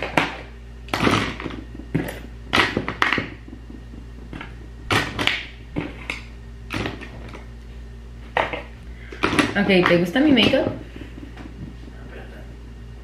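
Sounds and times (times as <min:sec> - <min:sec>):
makeup items knocking on tabletop: 0:00.0 - 0:07.2.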